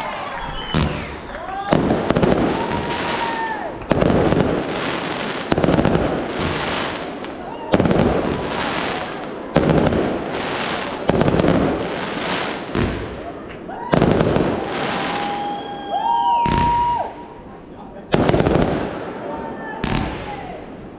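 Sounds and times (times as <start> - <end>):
firework whistle: 0.0 - 4.0, 13.8 - 17.3
crackling firework sizzle: 0.0 - 17.1.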